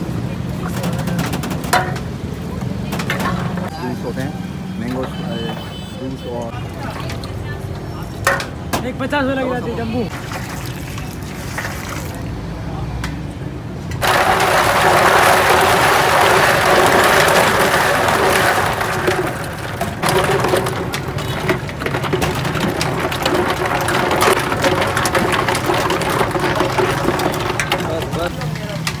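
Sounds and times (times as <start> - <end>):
liquid pouring and splashing: 10.1 - 12.4, 14.0 - 28.4
ice scraping in metal vat: 14.0 - 29.0.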